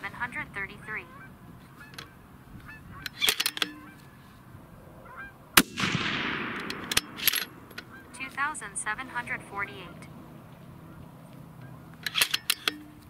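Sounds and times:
metallic clicks: 3.0 - 3.9, 5.7 - 8.0, 11.9 - 13.0
rifle shot with echo: 5.6 - 8.3.

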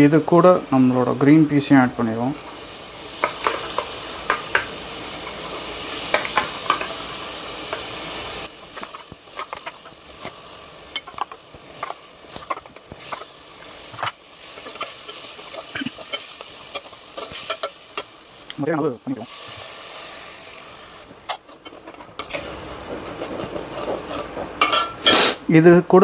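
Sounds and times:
masala sizzling in a pan: 0.0 - 25.6
spoon scraping and tapping pan: 3.2 - 7.0, 8.7 - 18.1, 21.2 - 25.2.

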